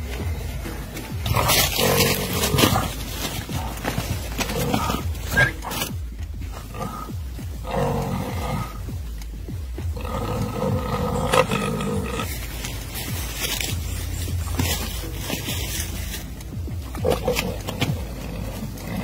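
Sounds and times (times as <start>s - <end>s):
boar screaming: 1.2s - 6.0s.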